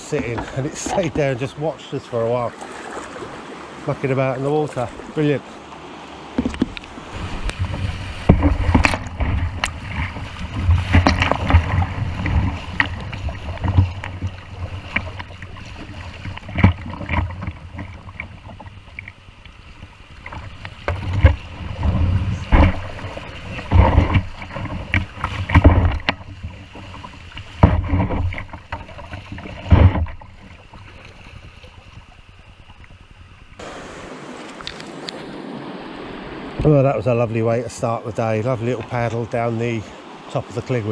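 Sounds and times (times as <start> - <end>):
river water rushing: 0.0 - 32.8, 33.6 - 40.9
paddle strokes splashing: 0.0 - 40.9
knocks on kayak: 6.3 - 15.5, 16.2 - 18.7, 20.2 - 30.4.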